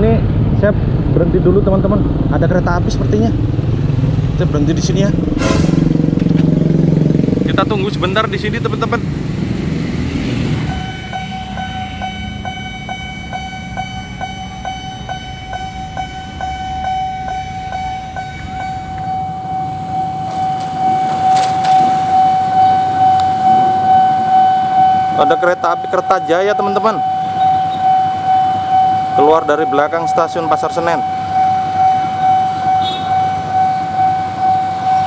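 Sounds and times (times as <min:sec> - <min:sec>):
low traffic noise: 0:00.0 - 0:35.0
level crossing warning bell: 0:10.6 - 0:35.0.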